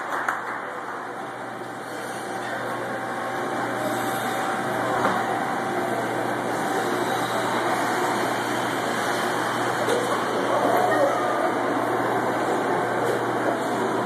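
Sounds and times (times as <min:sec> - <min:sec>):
indistinct crowd chatter: 0:00.0 - 0:14.0.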